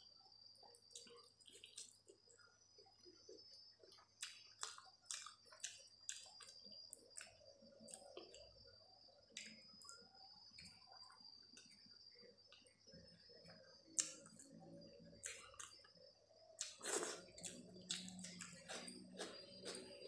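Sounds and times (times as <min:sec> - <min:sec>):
faint high whine: 0:00.0 - 0:20.0
wet chewing: 0:00.9 - 0:02.2, 0:03.9 - 0:08.5, 0:16.6 - 0:20.0.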